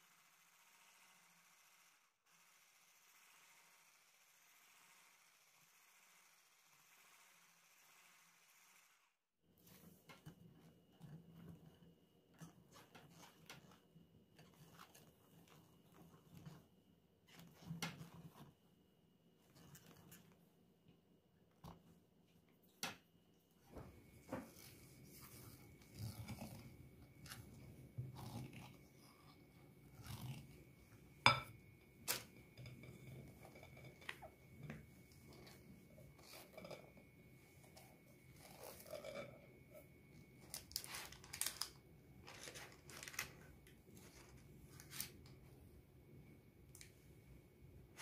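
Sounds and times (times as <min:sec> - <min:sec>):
faint high whine: 0:23.6 - 0:48.0
spatula scraping glass bowl: 0:35.4 - 0:37.0, 0:37.7 - 0:39.8
paper crinkles: 0:40.4 - 0:45.4.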